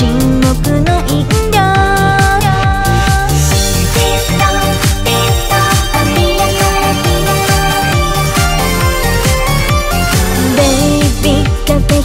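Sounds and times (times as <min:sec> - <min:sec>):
kick drum beat: 0:00.0 - 0:12.0
sustained synth notes: 0:02.9 - 0:10.9.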